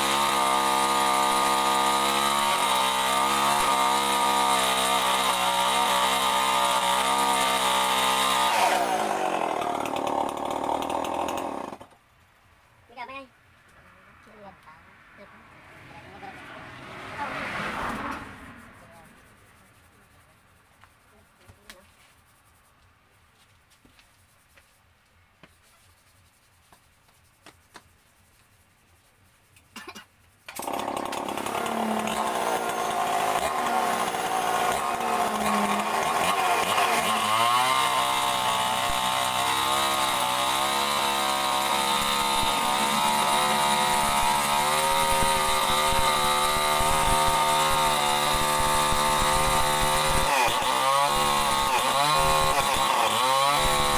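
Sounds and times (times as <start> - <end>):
chainsaw cutting wood: 0.0 - 12.0, 30.5 - 53.9
chainsaw running: 0.0 - 12.0, 30.5 - 53.9.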